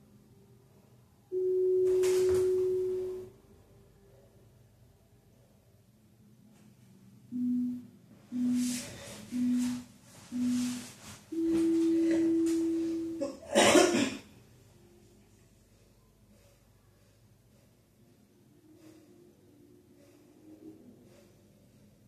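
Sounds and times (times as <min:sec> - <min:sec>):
long higher timer beep: 0:07.3 - 0:13.2
short low timer beeps: 0:07.3 - 0:13.2
rustling noise: 0:08.4 - 0:12.8.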